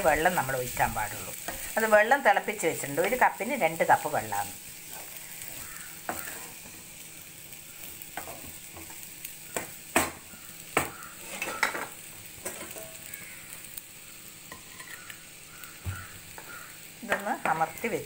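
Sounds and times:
light frying sizzle: 0.0 - 18.0
spatula scraping a pan: 0.3 - 1.8, 4.7 - 7.0, 7.8 - 13.2, 14.5 - 16.7.

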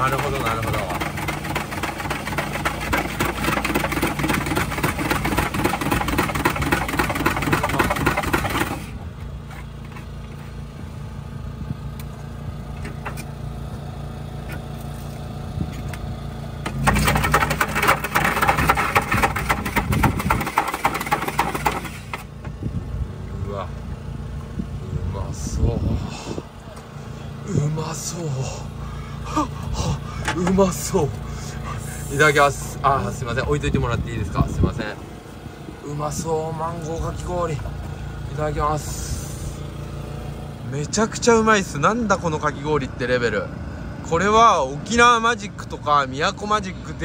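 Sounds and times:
ice shaving machine running: 0.0 - 9.0, 16.7 - 22.3
steady low hum: 0.0 - 44.1.

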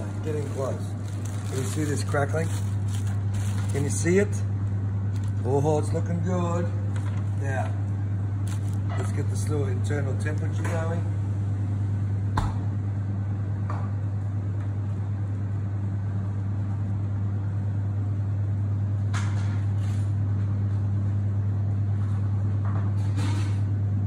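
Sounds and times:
faint handling noises: 0.0 - 4.1, 8.4 - 9.2
kitchen equipment humming: 0.0 - 13.8.

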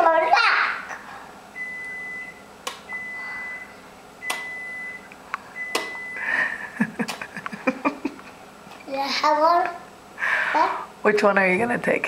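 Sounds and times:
electronic beeper beeping: 1.6 - 6.2.

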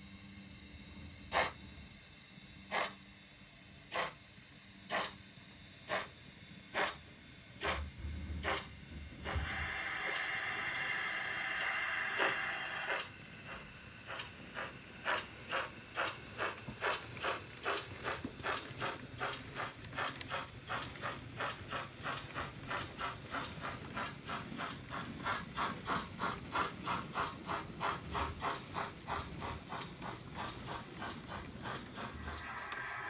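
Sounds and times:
model steam locomotive chuffs: 0.9 - 33.0.

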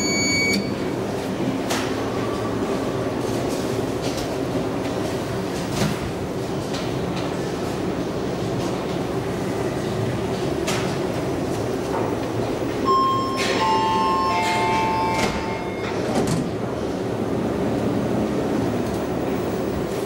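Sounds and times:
elevator arrival chime: 0.0 - 1.0, 12.8 - 16.2
elevator rumble: 0.0 - 20.0.

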